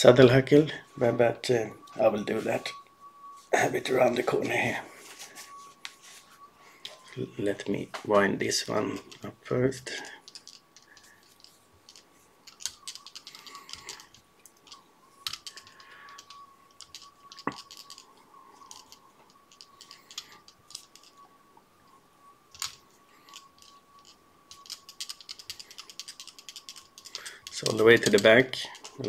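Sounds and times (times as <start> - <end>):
faint high-pitched hum: 0.0 - 29.0
hands winding material clicking: 8.4 - 21.2, 22.5 - 29.0.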